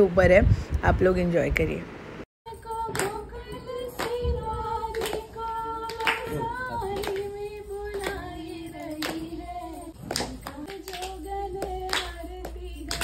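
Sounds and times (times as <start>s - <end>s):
woman singing: 2.5s - 13.0s
hand claps: 2.8s - 13.0s.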